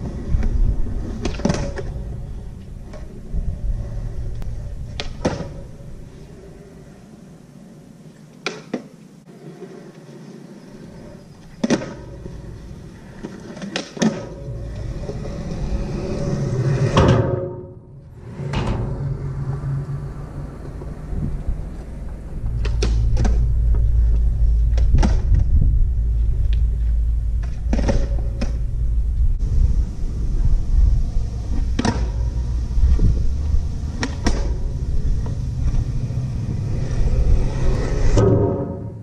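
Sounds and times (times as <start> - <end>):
wind buffeting microphone: 0.0 - 6.5, 18.0 - 38.2
skateboard wheels rolling on concrete: 0.0 - 39.0
skateboard clacks: 4.9 - 5.8, 8.4 - 9.0, 10.8 - 15.4.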